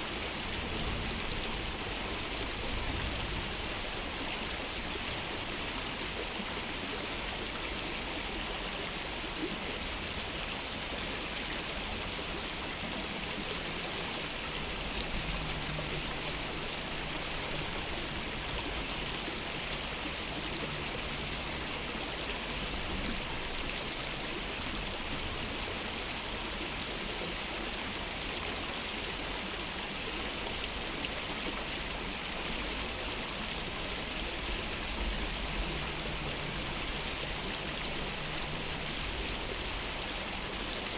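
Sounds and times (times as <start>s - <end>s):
stream water babbling: 0.0s - 40.9s.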